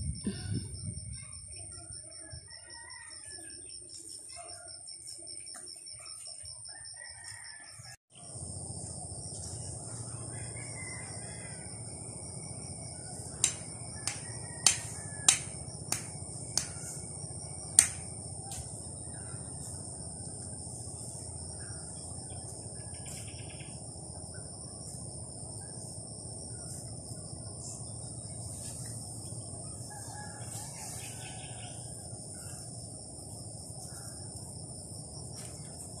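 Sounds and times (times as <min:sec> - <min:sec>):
low outdoor rumble: 0:08.2 - 0:36.0.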